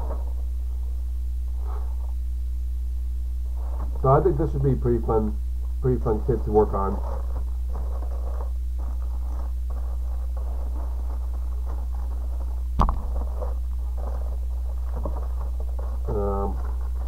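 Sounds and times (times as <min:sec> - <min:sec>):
low electrical hum: 0:00.0 - 0:17.0
rustling handling noise: 0:06.3 - 0:17.0
sharp knock: 0:12.8 - 0:13.2.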